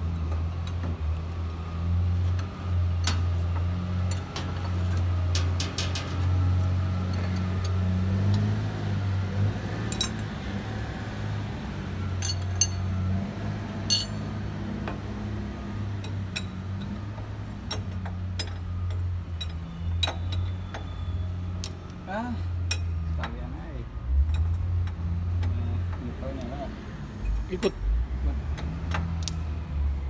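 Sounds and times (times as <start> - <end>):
metal clicks on hose fittings: 28.6 - 29.4.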